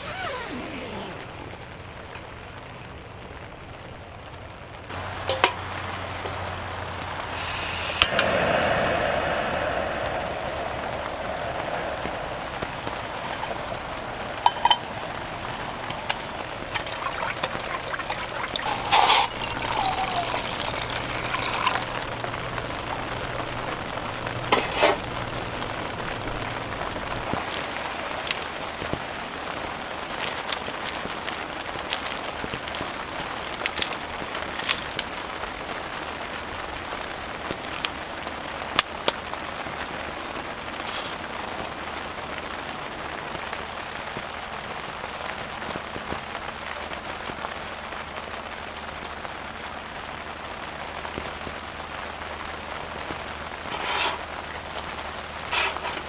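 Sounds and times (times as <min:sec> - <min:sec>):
camping stove burner hissing: 0:00.0 - 0:01.6, 0:04.9 - 0:28.9, 0:53.3 - 0:56.0.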